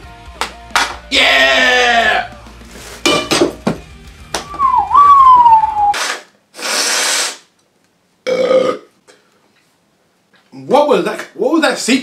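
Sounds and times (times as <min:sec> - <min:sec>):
man whining: 0:01.1 - 0:02.3
blowing nose into tissue: 0:06.5 - 0:07.5
breathy hissing exhales: 0:06.6 - 0:07.5.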